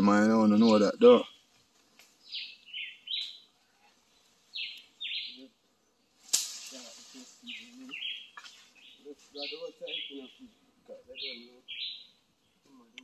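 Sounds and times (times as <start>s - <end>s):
bird calling harsh notes: 2.2s - 12.7s
sharp snap: 6.2s - 7.0s
trailing hiss: 6.2s - 7.9s.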